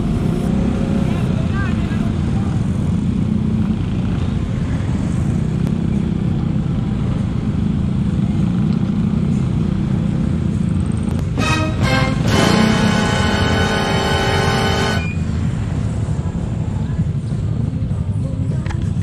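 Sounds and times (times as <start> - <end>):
music: 11.2 - 15.2, 16.4 - 19.0.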